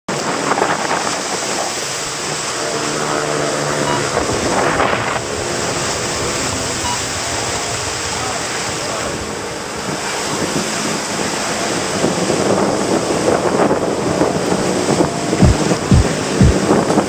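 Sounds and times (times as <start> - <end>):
wind buffeting microphone: 0.1 - 17.0
engine hum: 0.3 - 17.0.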